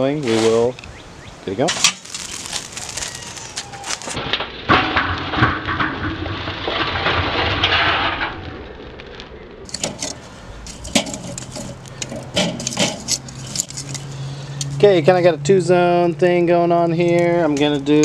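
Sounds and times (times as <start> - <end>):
charcoal pouring and crackling: 1.7 - 14.1
metal tongs clinking on coals: 9.7 - 14.8.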